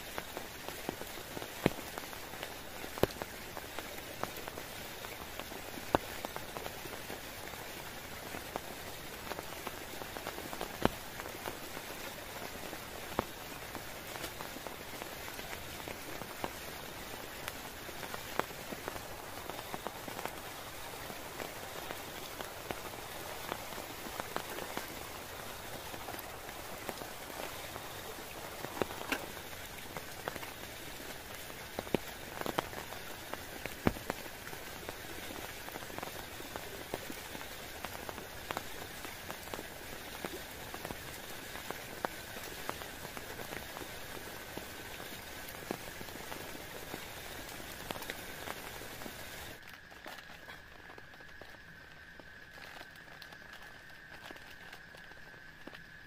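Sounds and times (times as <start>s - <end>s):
raindrops tapping close by: 0.0s - 56.0s
steady rain falling: 0.0s - 56.0s.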